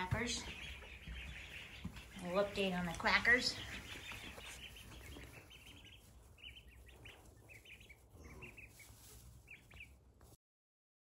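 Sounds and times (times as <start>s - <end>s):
ducklings peeping: 0.0s - 10.4s.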